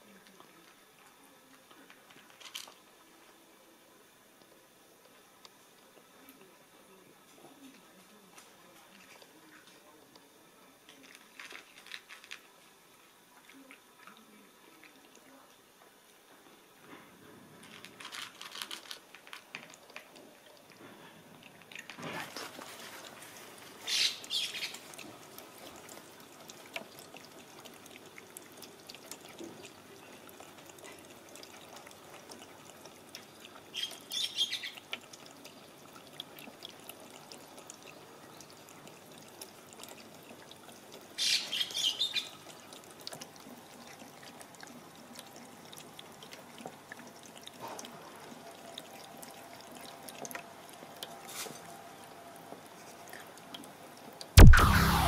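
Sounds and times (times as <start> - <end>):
cat lapping water: 0.0 - 16.3, 19.0 - 54.4
water trickling from a tap: 19.5 - 54.4
birds chirping: 23.9 - 24.8.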